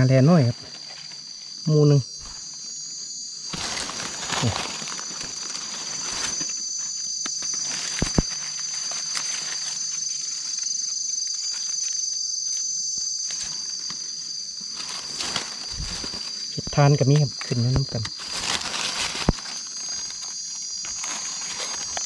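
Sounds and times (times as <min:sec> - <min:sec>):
insects buzzing: 0:00.0 - 0:22.0
footsteps in dry leaves: 0:02.2 - 0:11.9, 0:13.2 - 0:16.6, 0:18.1 - 0:22.0.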